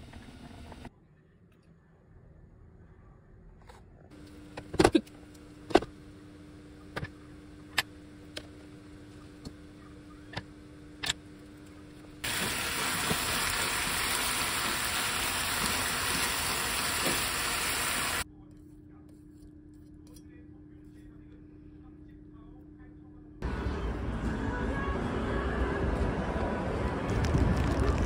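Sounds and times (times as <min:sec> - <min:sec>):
meat sizzling in a pan: 0:12.2 - 0:18.2.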